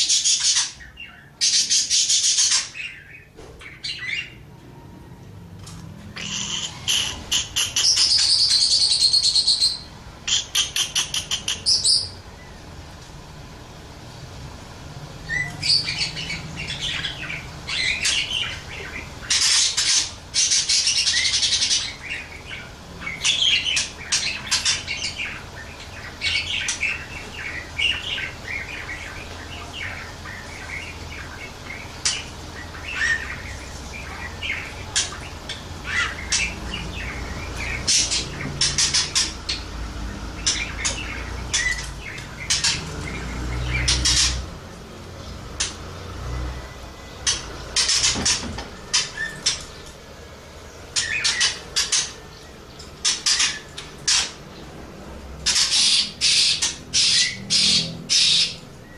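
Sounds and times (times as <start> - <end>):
budgerigar warbling: 6.2 - 12.2, 15.3 - 39.8, 55.4 - 58.6.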